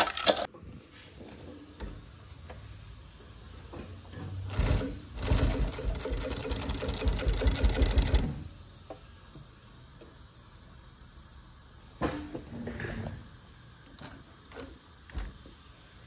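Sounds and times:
sewing machine needle strokes: 0:04.5 - 0:08.4.

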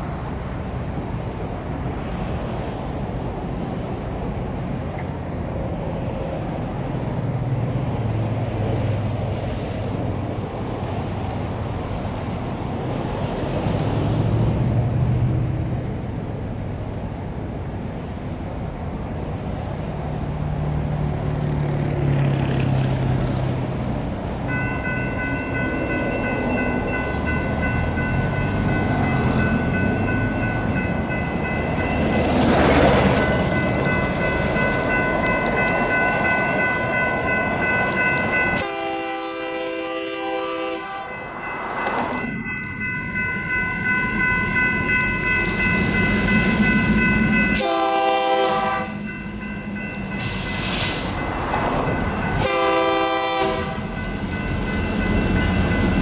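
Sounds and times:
train rumble: 0:00.0 - 0:56.0
crossing bells ringing: 0:24.4 - 0:56.0
locomotive air horn blasts: 0:38.6 - 0:41.2, 0:47.5 - 0:49.1, 0:52.4 - 0:54.0.

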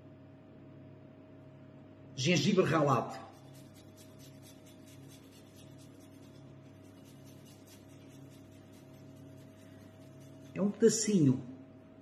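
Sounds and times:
ginger grating strokes: 0:03.2 - 0:10.8
low hum: 0:03.2 - 0:10.8.

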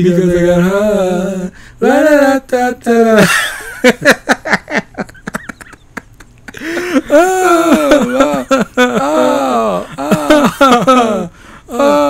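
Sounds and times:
drawn-out voice sound: 0:00.0 - 0:03.3, 0:06.6 - 0:12.0
man laughing: 0:03.1 - 0:12.0.

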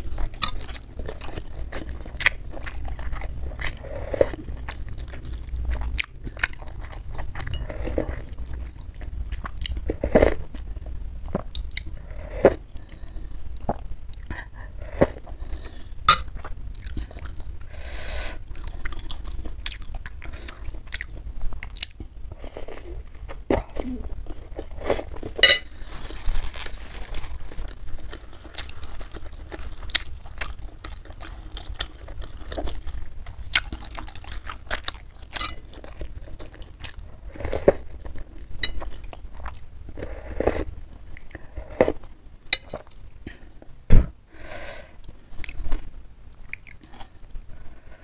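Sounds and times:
chewing and mouth smacking: 0:27.6 - 0:39.7, 0:45.1 - 0:47.2.

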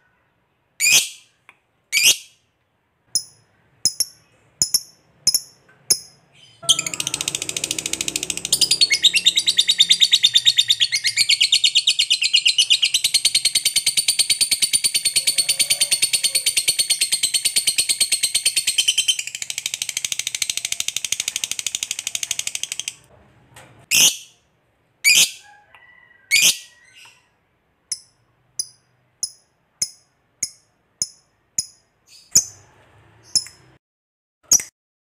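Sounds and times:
bird chattering trill: 0:03.2 - 0:23.0
bird chirps: 0:03.2 - 0:23.0, 0:27.9 - 0:32.6, 0:33.2 - 0:33.8
bird squawks: 0:06.4 - 0:13.0.

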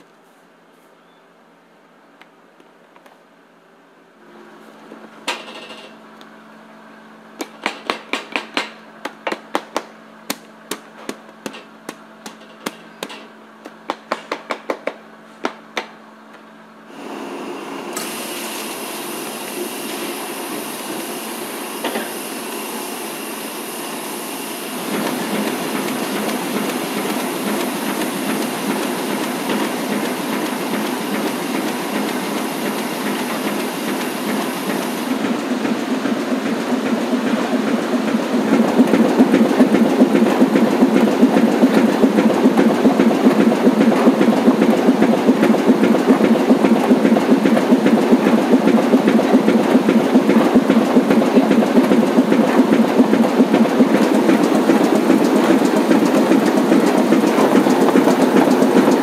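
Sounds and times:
printing machinery running: 0:16.9 - 0:59.0.

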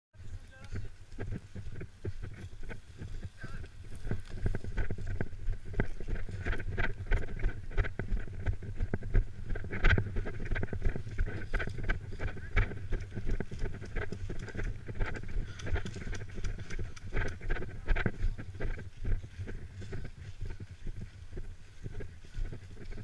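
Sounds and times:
wind rumble on microphone: 0:00.2 - 0:23.0
footsteps crunching dry leaves: 0:00.8 - 0:06.4.

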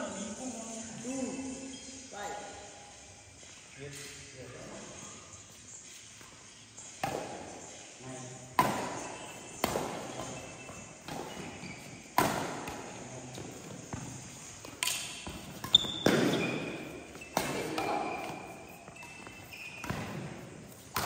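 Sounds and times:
rackets hitting shuttlecock: 0:07.0 - 0:07.6, 0:08.5 - 0:21.0.

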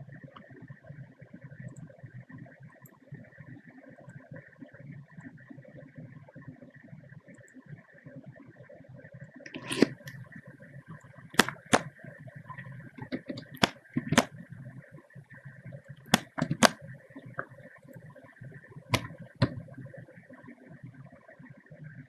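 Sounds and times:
faint steady hum: 0:00.0 - 0:22.0
computer keys clicking: 0:11.4 - 0:11.9, 0:13.0 - 0:14.3, 0:16.1 - 0:17.4.

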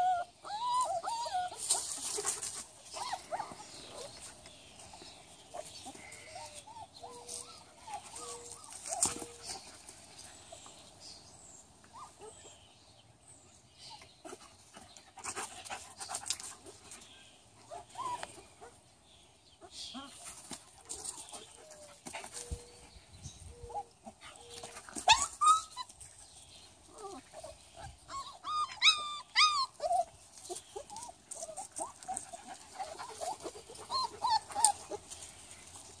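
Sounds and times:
puppies whimpering and squealing: 0:00.0 - 0:02.1, 0:04.8 - 0:10.6, 0:17.7 - 0:18.4, 0:23.5 - 0:26.1, 0:26.8 - 0:35.8.

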